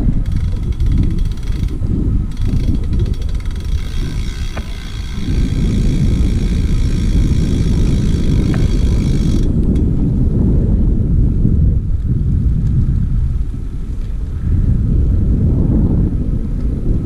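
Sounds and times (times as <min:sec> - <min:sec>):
high hiss of rolling bike: 0:00.0 - 0:10.3
wind buffeting microphone: 0:00.0 - 0:17.0.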